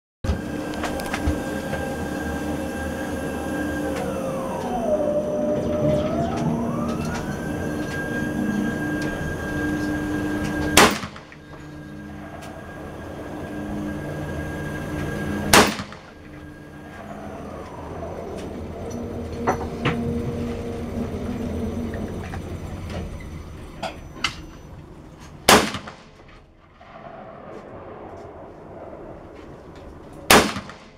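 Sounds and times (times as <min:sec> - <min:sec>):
high sliding whine: 0:00.3 - 0:30.9
steady hum: 0:00.3 - 0:30.9
rifle shots: 0:10.8 - 0:11.4, 0:15.5 - 0:16.2, 0:25.4 - 0:26.2, 0:30.3 - 0:30.9.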